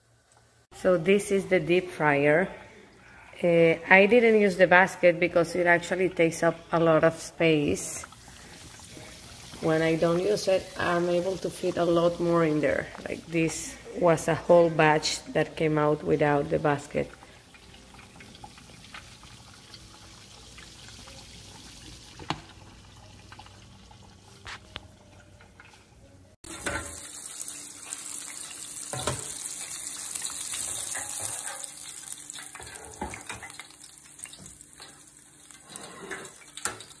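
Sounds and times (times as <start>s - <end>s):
hot oil sizzling in deep fryer: 7.5s - 13.3s, 15.0s - 24.4s, 26.4s - 37.0s.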